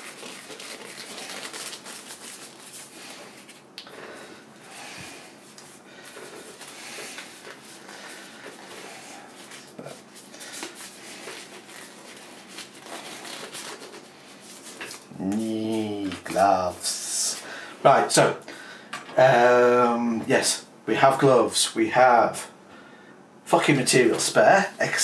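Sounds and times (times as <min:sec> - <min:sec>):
surgical gloves rustling: 0:00.0 - 0:17.4.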